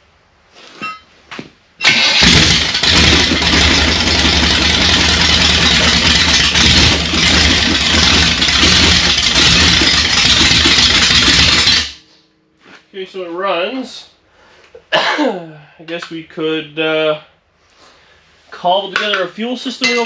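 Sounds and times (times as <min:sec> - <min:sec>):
loud unsilenced engine running: 0:01.8 - 0:12.0.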